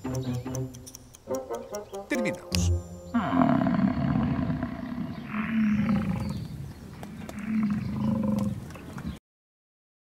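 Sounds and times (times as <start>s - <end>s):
big cat roaring: 3.2s - 6.5s, 7.1s - 8.6s.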